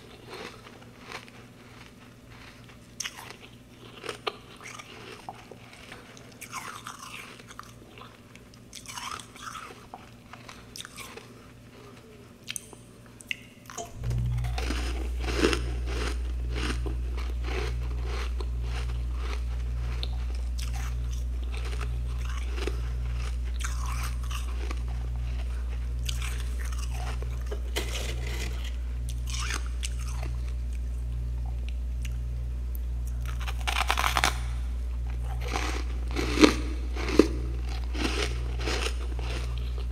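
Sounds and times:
crunching frost: 0.0 - 7.6, 13.9 - 30.6, 33.2 - 39.9
loud steady low hum: 0.0 - 39.9
pulsing drone: 13.8 - 30.5.

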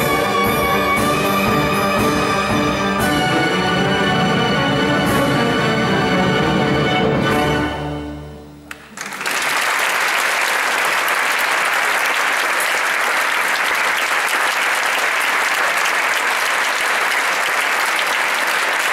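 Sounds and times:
audience applause: 8.7 - 18.9.

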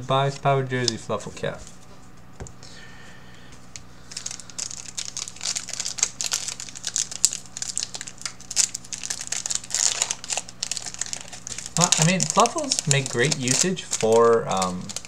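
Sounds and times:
foil wrapper crinkling: 4.0 - 15.0.

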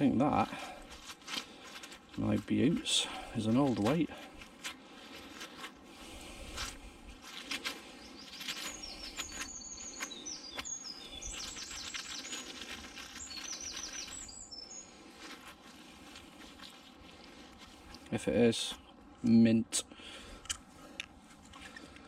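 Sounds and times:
songbird singing: 7.6 - 19.7.

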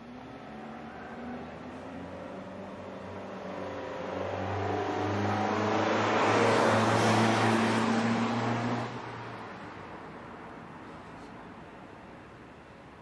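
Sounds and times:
vehicle engine accelerating past: 0.1 - 9.3.

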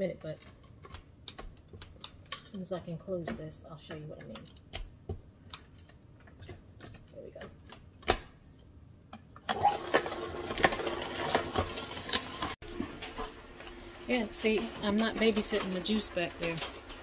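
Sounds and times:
juicer motor grinding carrots: 9.4 - 17.0.

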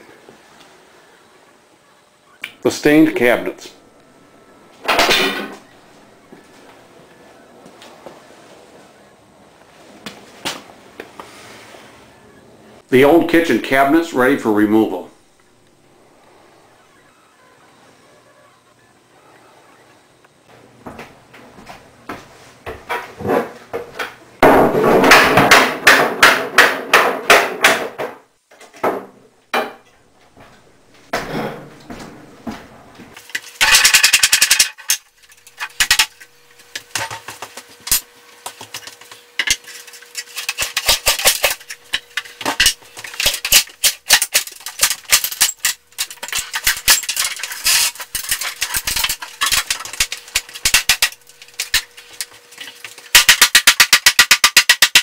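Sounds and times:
hammering on wooden cabinets: 24.4 - 29.8.

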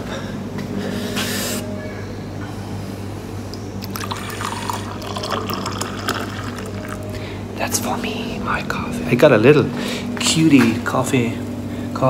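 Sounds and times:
steady low hum: 0.0 - 12.0
coffee pouring into a cup: 3.8 - 7.2.

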